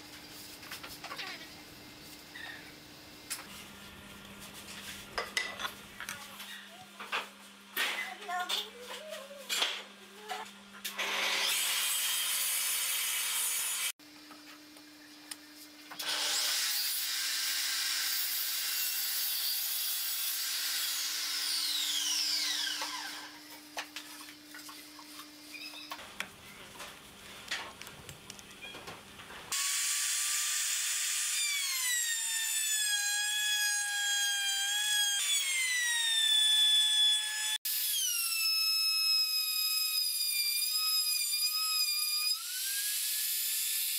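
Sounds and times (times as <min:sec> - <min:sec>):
power tool cutting wood: 0:10.9 - 0:14.0, 0:16.0 - 0:23.5, 0:29.5 - 0:43.9
router whining cutting wood: 0:16.0 - 0:23.5, 0:29.5 - 0:43.9.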